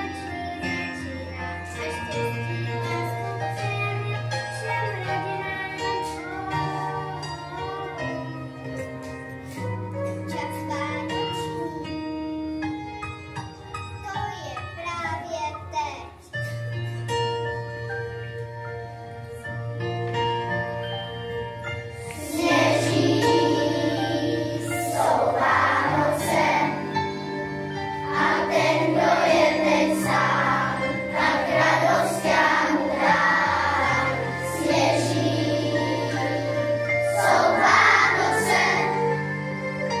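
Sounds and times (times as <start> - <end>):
children's choir singing: 0.0 - 8.6, 22.0 - 40.0
instrumental accompaniment: 0.0 - 40.0.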